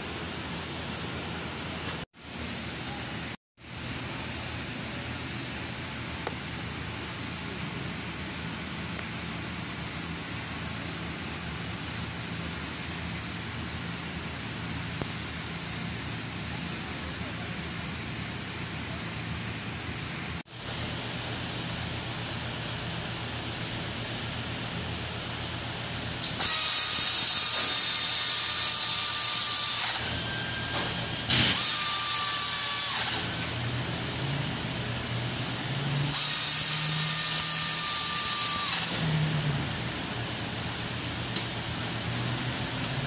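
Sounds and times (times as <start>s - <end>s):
power tool hissing whine: 26.2s - 33.8s, 36.1s - 40.4s.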